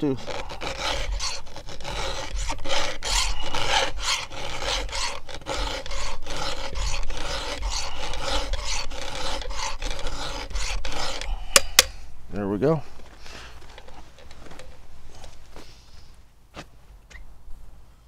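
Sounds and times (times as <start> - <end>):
file rasping on chainsaw chain: 0.0 - 11.9.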